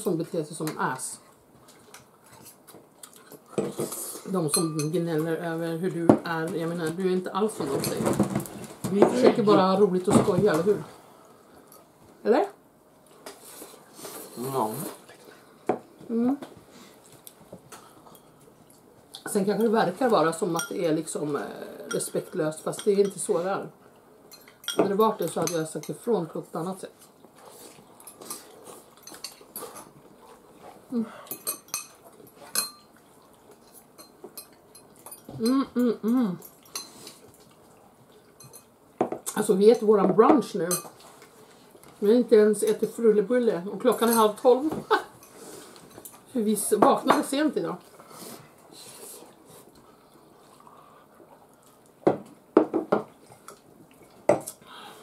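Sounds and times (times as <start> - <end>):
forks clinking against glass bowls: 31.3 - 32.9.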